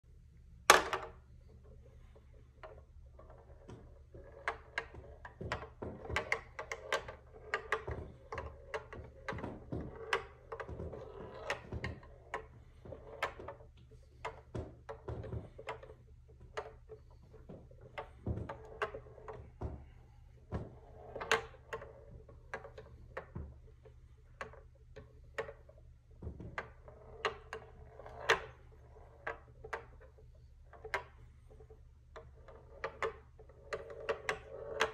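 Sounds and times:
ball knocking maze walls: 0.7 - 1.2, 2.6 - 34.9
steel ball rolling on wooden board: 2.6 - 19.4, 26.5 - 34.9.

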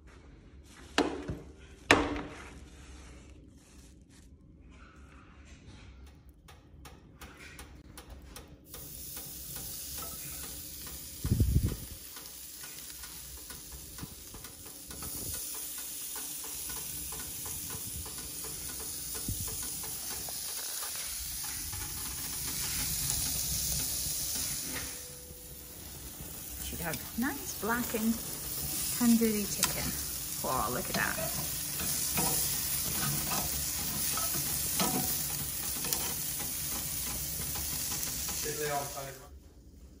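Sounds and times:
chicken sizzling and crackling: 8.6 - 39.2.

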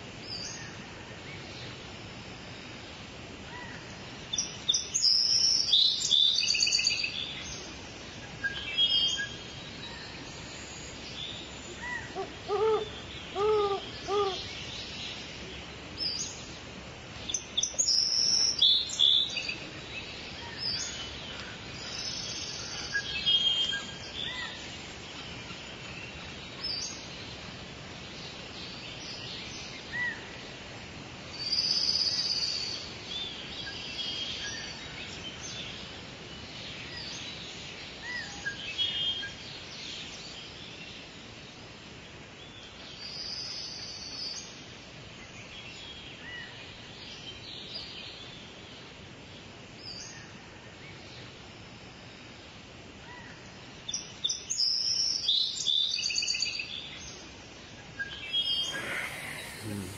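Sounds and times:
faint hiss: 0.0 - 59.9
birds chirping and trilling: 58.1 - 59.9
low hollow hooting: 58.3 - 59.9.

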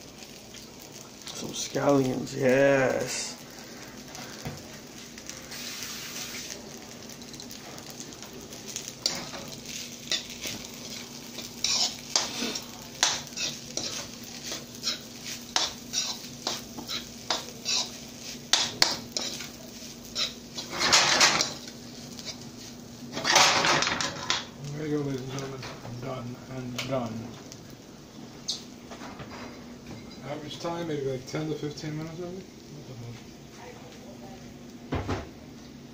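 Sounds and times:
rice sizzling in a frying pan: 0.0 - 35.9
spatula scraping a pan: 9.0 - 23.6.

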